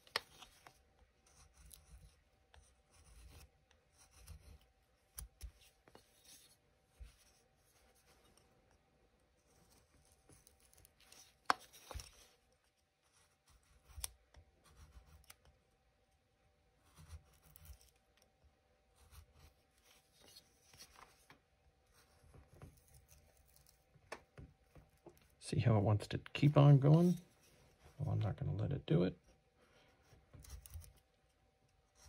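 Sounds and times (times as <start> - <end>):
carving tool slicing wood: 2.6 - 6.6.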